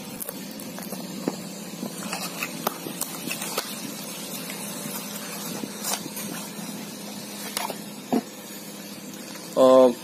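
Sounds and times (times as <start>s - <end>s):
steady background hiss: 0.0s - 10.0s.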